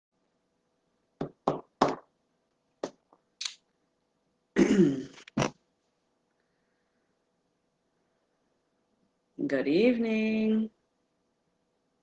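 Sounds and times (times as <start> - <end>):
woman coughing: 4.6 - 5.2
throat clearing: 4.6 - 5.3.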